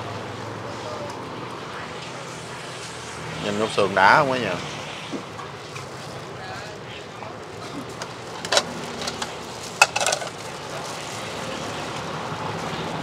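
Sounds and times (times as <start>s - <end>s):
traffic rumble: 0.0s - 13.0s
utensils clinking against bowls: 7.8s - 10.5s.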